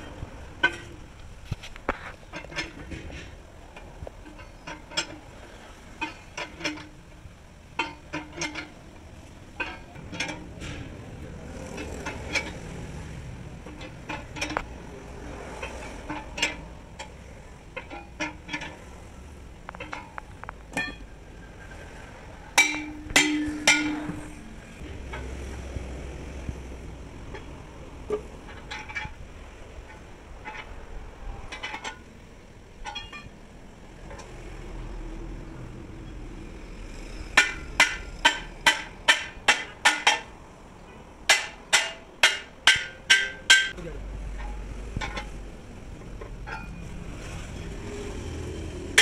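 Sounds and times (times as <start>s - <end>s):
metal clanks and knocks: 0.0s - 33.4s, 37.2s - 47.8s
ringing metal strikes: 22.6s - 24.4s.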